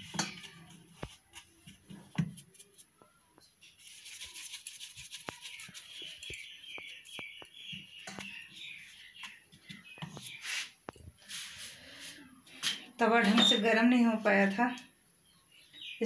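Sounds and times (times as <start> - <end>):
hands kneading dough in bowl: 0.0 - 3.0.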